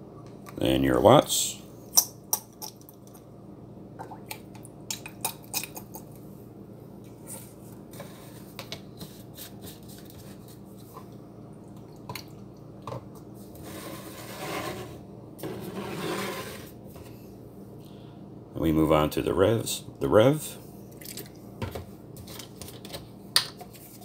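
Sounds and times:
bottles rubbing and scraping: 0:13.5 - 0:16.8.

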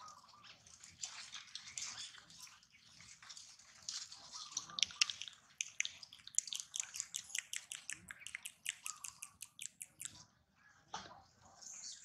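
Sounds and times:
rapid high chirps: 0:04.9 - 0:10.2.

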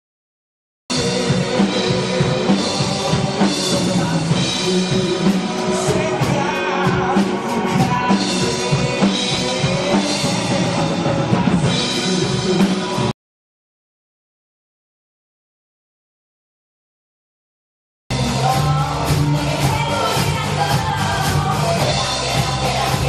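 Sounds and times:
rock band playing: 0:00.9 - 0:13.1, 0:18.1 - 0:23.0.

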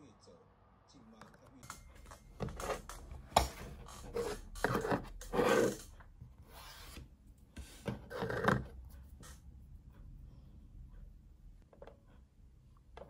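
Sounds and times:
plastic items rubbing on wooden desk: 0:03.7 - 0:07.0.

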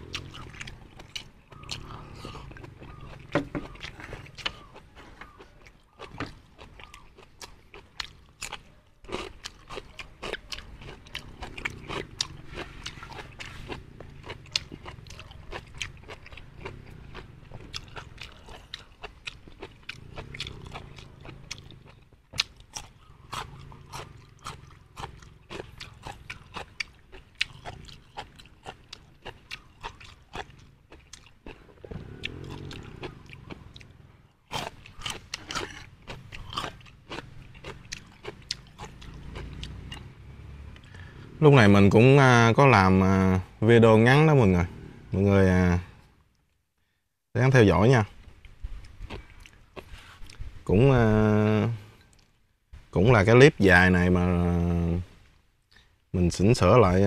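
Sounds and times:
wet mouth chewing sounds: 0:00.0 - 0:40.1, 0:48.3 - 0:50.6
cucumber crunching: 0:00.1 - 0:33.8, 0:34.5 - 0:40.0, 0:48.3 - 0:50.5.

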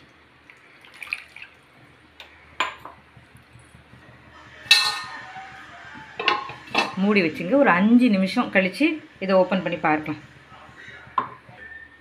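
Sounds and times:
water dripping and splashing: 0:00.0 - 0:02.0
steel cookware clanking: 0:04.6 - 0:05.3, 0:06.1 - 0:07.2.

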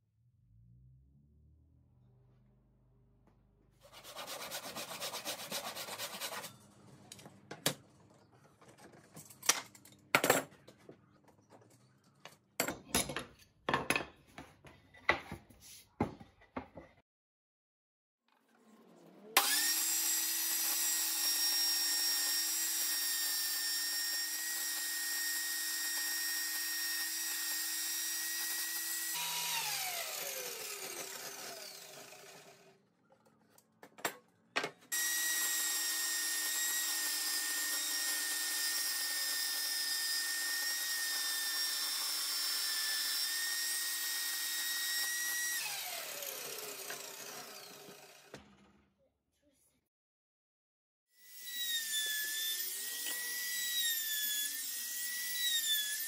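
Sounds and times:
saw winding down: 0:18.6 - 0:32.8, 0:34.9 - 0:48.3, 0:51.2 - 0:56.0
table saw whine: 0:18.6 - 0:32.8, 0:34.9 - 0:48.3, 0:51.2 - 0:56.0.

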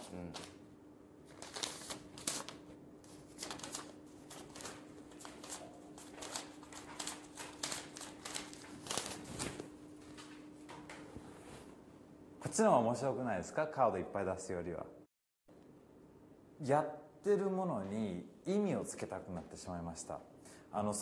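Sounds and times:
banknotes snapping and rustling: 0:01.3 - 0:11.0.

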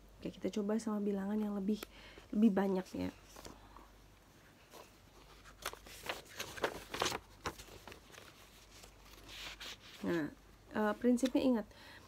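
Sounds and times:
paper rustling: 0:04.6 - 0:10.4
paper crackling and tapping: 0:04.8 - 0:10.2.

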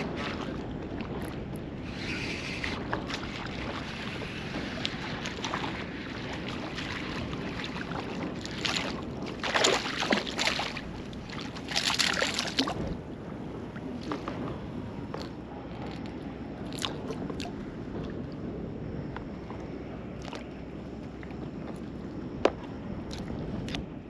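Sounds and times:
water splashing: 0:00.0 - 0:13.1
water lapping: 0:00.0 - 0:18.6, 0:19.5 - 0:23.8
wind on microphone: 0:00.0 - 0:24.0.

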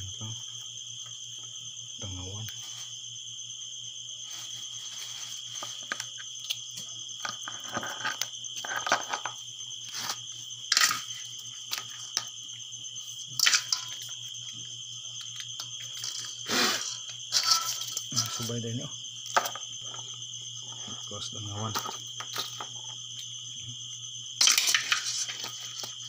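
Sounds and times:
crickets chirping: 0:00.0 - 0:26.0
rustling and clicking of prawns: 0:04.3 - 0:12.4, 0:13.1 - 0:21.1, 0:24.4 - 0:26.0.

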